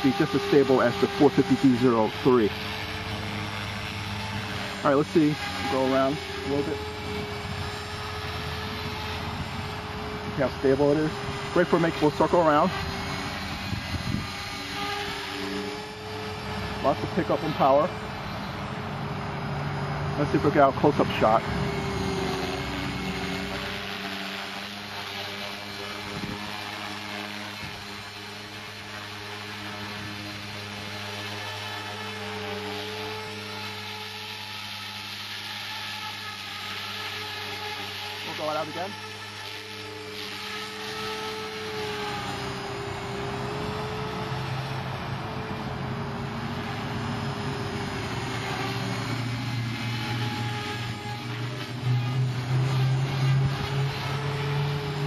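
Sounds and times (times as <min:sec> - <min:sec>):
electric rc helicopter hovering: 0:00.0 - 0:55.0
low hum: 0:05.4 - 0:24.8.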